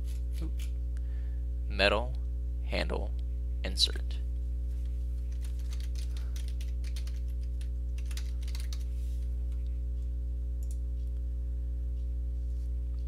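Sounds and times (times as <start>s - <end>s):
low electrical hum: 0.0s - 13.0s
computer keyboard typing: 5.2s - 8.9s.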